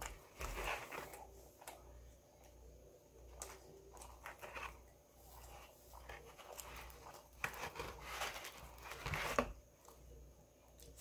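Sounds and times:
bread crust crackling and tearing: 3.3 - 9.9.

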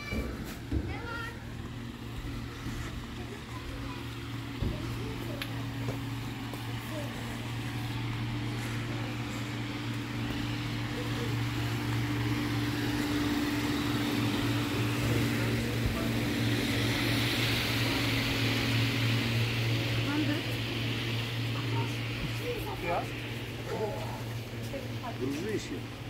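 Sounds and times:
machine drone with low hum: 0.0 - 26.0.

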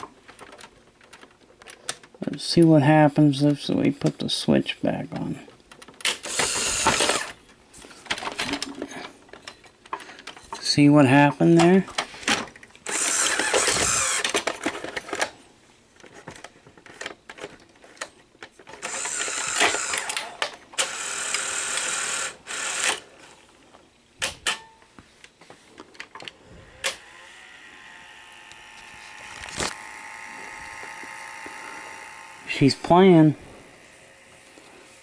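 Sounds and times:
motor whirring and gear noise: 6.2 - 7.4, 12.8 - 14.4, 18.8 - 23.1, 26.5 - 35.0
tape machine whine: 26.6 - 35.0.

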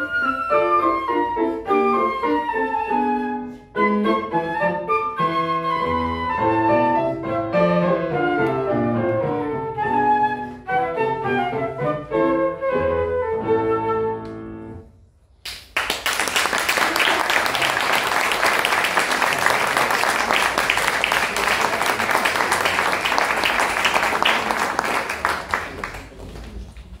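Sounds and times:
flute and piano playing: 0.0 - 14.8
audience applause: 15.5 - 27.0.

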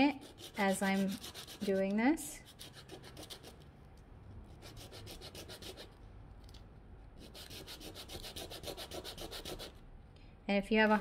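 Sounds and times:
sandpaper rasping on wood: 0.1 - 1.9, 7.2 - 9.7.

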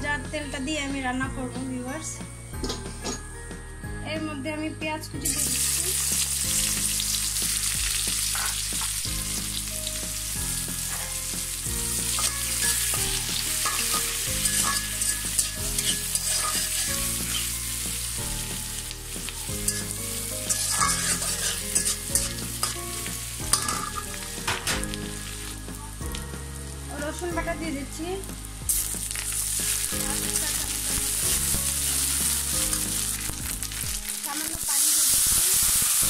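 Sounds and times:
onions sizzling in hot oil: 5.2 - 36.0
spatula scraping a wok: 5.4 - 9.6, 10.6 - 25.5.

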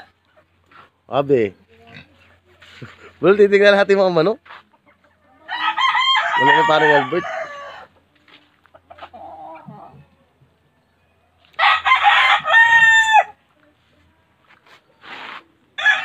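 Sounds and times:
rooster crowing: 5.5 - 7.9, 11.5 - 13.4, 15.8 - 16.0.

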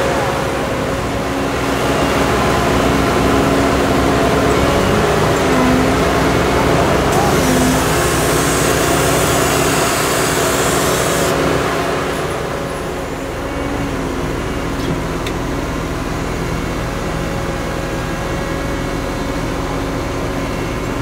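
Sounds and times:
diesel engine running: 0.0 - 21.0
hydraulic hiss: 7.1 - 11.4.

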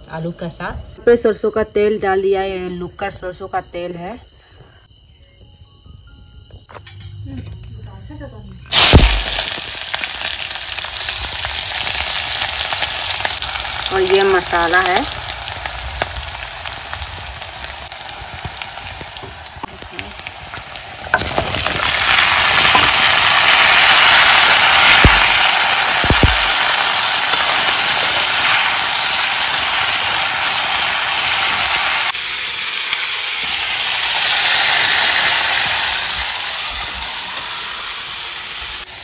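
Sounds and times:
vegetables frying in hot oil: 8.7 - 39.0.

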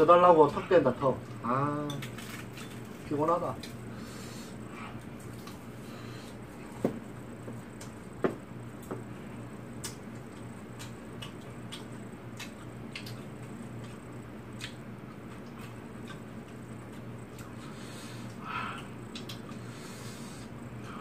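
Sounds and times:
chewing sounds: 9.8 - 19.6
chopsticks clicking against bowls: 10.8 - 13.2.

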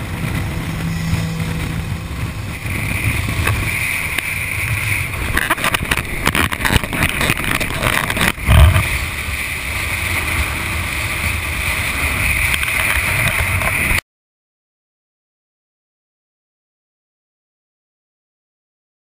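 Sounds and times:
motorcycle engine and road rumble: 0.0 - 14.0
wind rush over microphone: 0.0 - 14.0.

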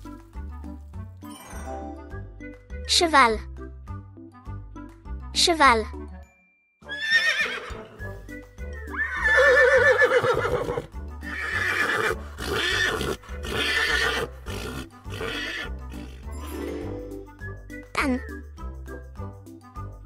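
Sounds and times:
background music with low bass: 0.0 - 6.3, 7.7 - 20.0
horse neighing: 6.9 - 8.0, 8.9 - 16.3.

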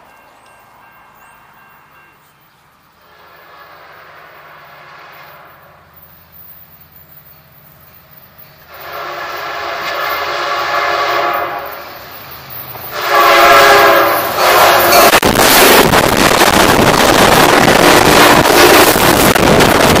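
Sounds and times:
train air horn blowing a chord: 3.0 - 5.8, 8.7 - 11.9, 12.9 - 15.2, 18.0 - 19.0.

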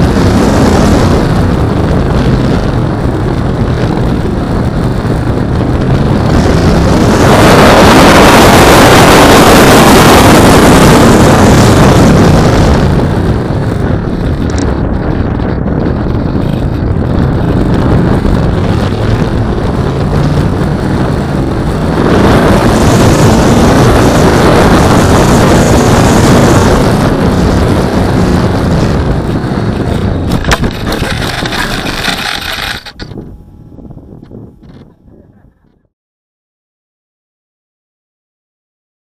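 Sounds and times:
model plane propeller hum: 0.0 - 35.6
wind rush: 0.0 - 35.6
wheels rolling on gravel: 27.3 - 33.2.

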